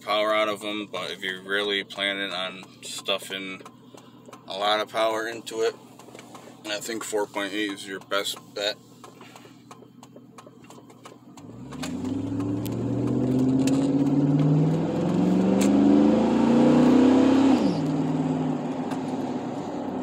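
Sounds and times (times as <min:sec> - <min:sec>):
truck engine accelerating: 0:10.4 - 0:20.0.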